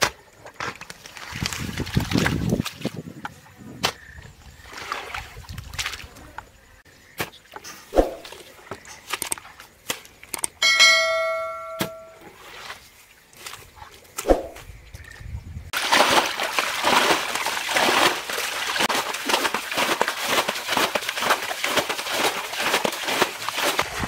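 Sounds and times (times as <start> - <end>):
notification ding: 10.6 - 12.2
digging tool splashing through mud: 15.8 - 24.0.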